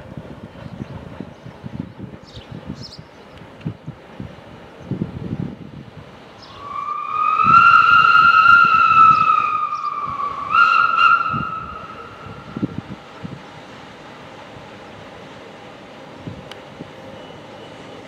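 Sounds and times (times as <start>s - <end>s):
steam locomotive whistle: 6.4s - 12.6s.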